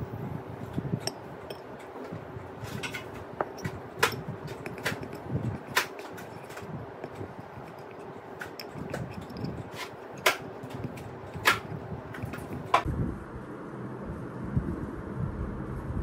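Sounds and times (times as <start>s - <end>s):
spoon stirring in a bowl: 0.7s - 12.8s
spoon clinking against bowl: 2.8s - 12.8s.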